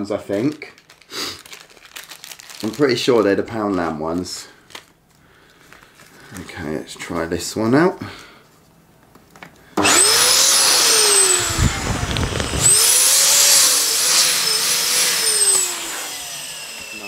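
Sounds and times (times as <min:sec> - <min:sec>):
balloon pump motor whining: 0:09.8 - 0:17.0.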